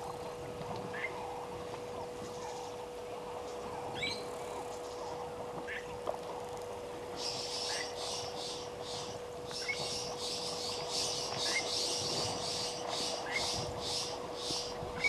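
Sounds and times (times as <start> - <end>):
birds calling: 7.1 - 15.0.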